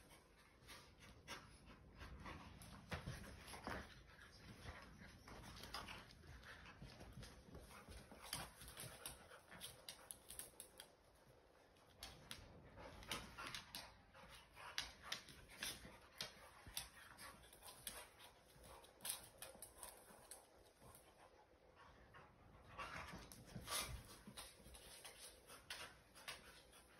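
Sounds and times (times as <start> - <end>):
dogs scuffling: 0.6 - 11.0, 22.8 - 26.9
claws clicking on wooden floor: 7.2 - 11.0, 11.9 - 21.1.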